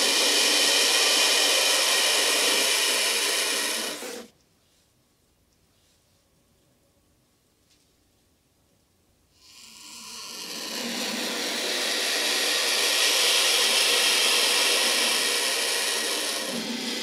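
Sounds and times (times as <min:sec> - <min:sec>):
vulture hissing: 0:00.0 - 0:04.3, 0:09.4 - 0:17.0.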